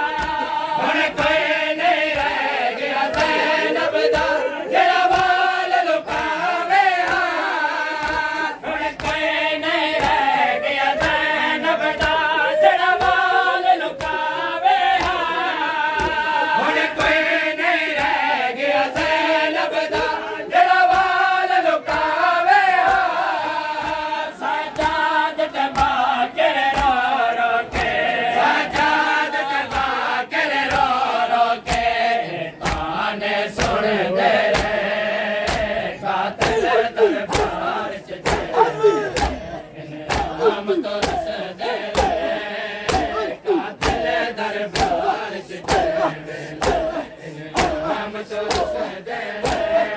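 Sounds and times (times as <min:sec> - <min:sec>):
men chanting in unison: 0:00.0 - 0:49.9
hands striking chests: 0:36.4 - 0:41.3, 0:41.9 - 0:44.1.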